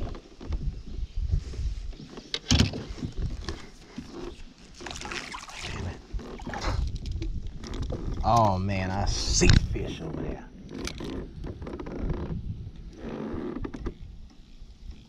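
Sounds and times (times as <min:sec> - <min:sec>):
water slapping against boat: 0:04.8 - 0:06.9.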